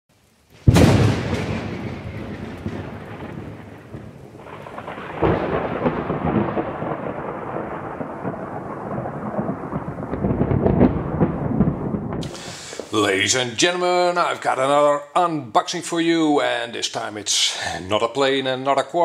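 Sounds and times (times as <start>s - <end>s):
thunder crack and rumble: 0.6s - 14.4s.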